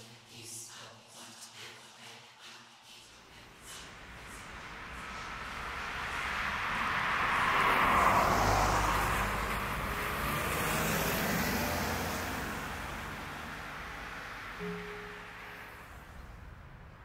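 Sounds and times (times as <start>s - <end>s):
traffic noise: 3.2s - 17.0s
car passing on wet road: 3.5s - 17.0s.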